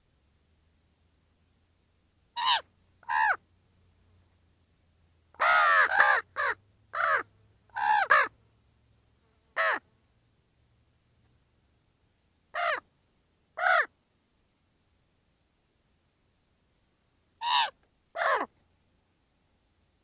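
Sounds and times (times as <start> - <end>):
ravens cawing: 2.4 - 3.4, 5.4 - 8.3, 9.6 - 9.8, 12.5 - 12.8, 13.6 - 13.9, 17.4 - 18.5.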